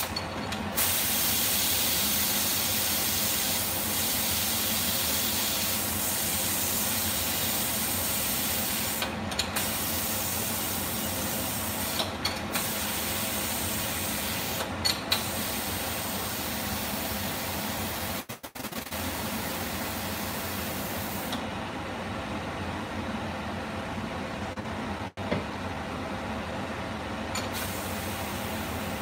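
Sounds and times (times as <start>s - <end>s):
pressure cooker steam hissing: 0.8s - 17.4s.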